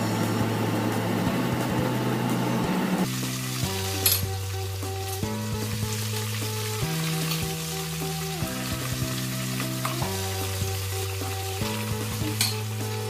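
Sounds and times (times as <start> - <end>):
background music with sustained chords: 0.0 - 13.0
squid frying in hot oil: 3.1 - 13.0.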